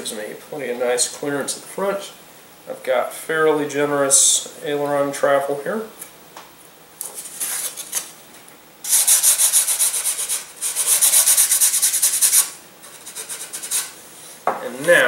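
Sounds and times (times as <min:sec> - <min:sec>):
sanding block rubbing wood: 0:08.9 - 0:14.0.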